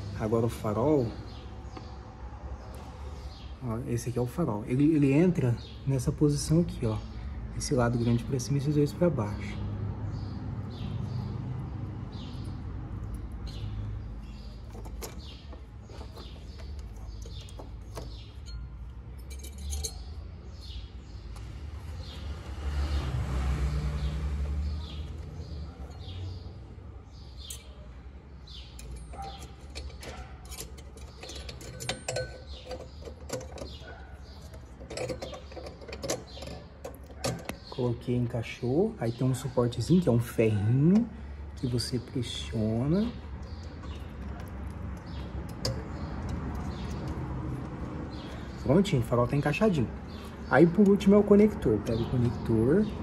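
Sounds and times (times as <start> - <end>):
birds chirping: 0.0 - 53.0
clinks of handling a bulb: 18.4 - 20.0.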